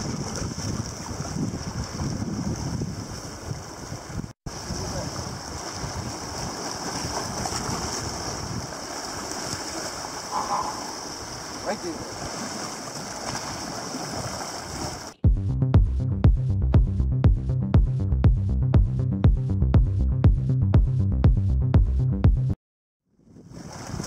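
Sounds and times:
wind gusting on microphone: 0.0s - 15.0s, 23.2s - 24.0s
waves washing against rocks: 0.0s - 15.2s.

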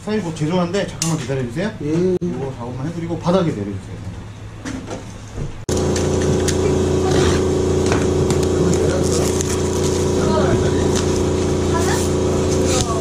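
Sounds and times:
loud steady engine-like drone: 5.7s - 13.0s
plastic wrap rustling: 8.4s - 11.9s.

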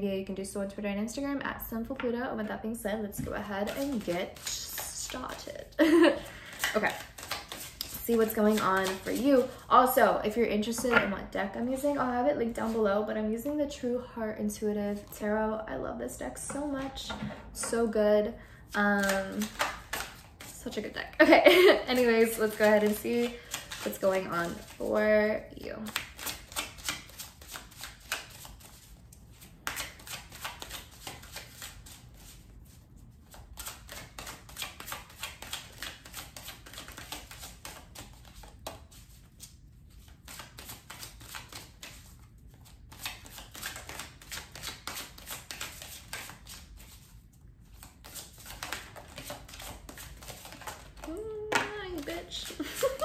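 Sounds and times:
cards being shuffled: 3.4s - 9.6s, 18.7s - 20.8s, 21.8s - 25.0s, 25.8s - 53.0s.

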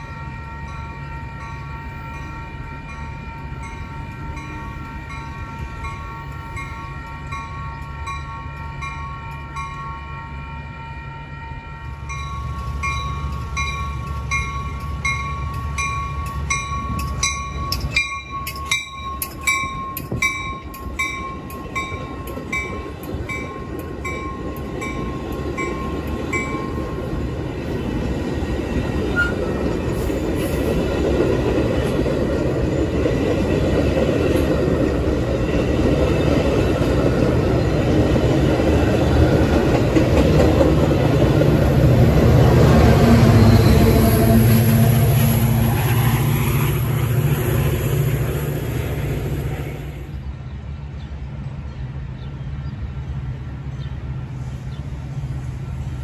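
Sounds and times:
train wheels rumbling on rails: 0.0s - 56.0s
bell ringing: 12.1s - 27.0s.

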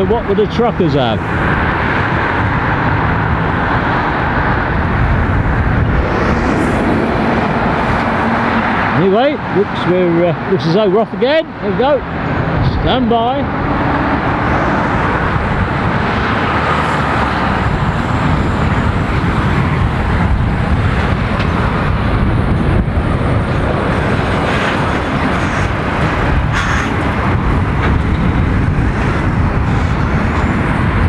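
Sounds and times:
car passing: 0.0s - 31.0s.

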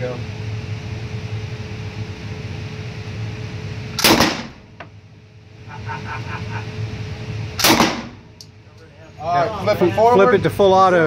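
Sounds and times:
ventilation hum: 0.0s - 11.0s
gunshot echoing: 4.0s - 4.6s, 7.6s - 8.2s
light click: 8.4s - 8.6s.

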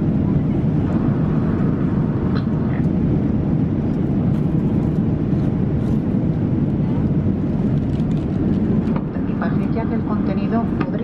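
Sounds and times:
airliner cabin roar: 0.0s - 11.0s.

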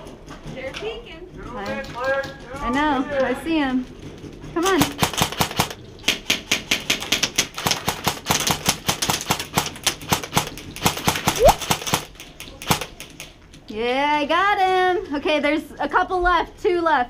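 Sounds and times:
airsoft gun firing: 7.8s - 13.0s.

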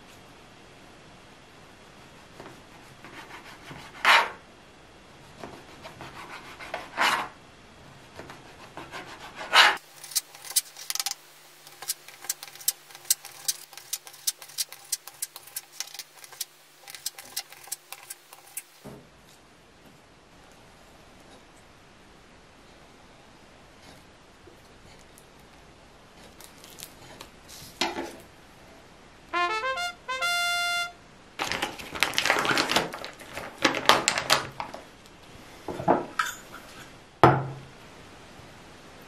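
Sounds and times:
knife sawing through bread: 8.4s - 18.8s.

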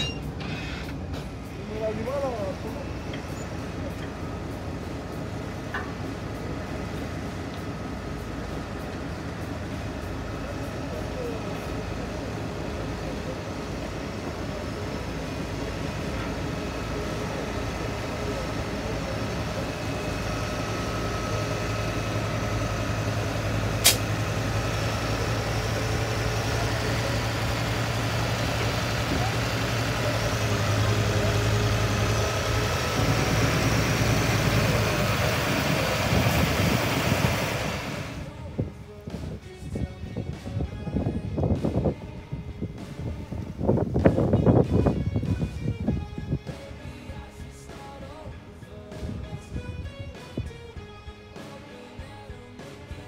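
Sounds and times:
diesel engine humming: 0.0s - 53.0s
sharp click: 23.8s - 24.1s.

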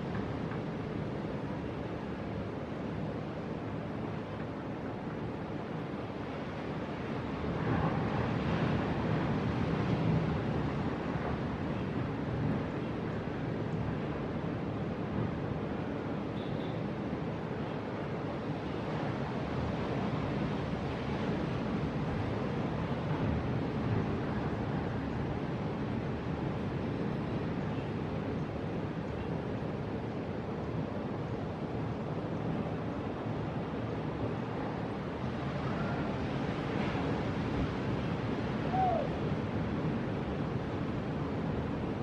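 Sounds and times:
wind on microphone: 34.2s - 42.0s.

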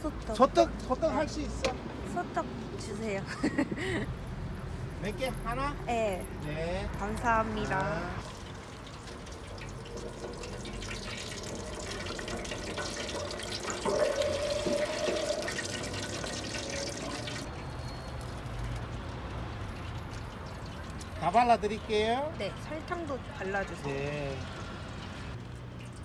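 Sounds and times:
oil sizzling in deep fryer: 8.2s - 17.5s.

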